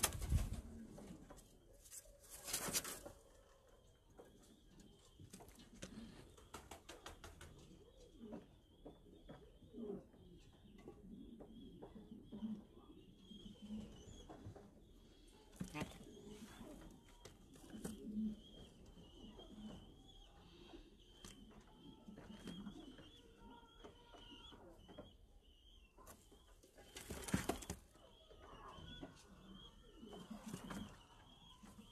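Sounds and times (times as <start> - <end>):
pigeons cooing: 7.3 - 25.1, 26.8 - 31.9.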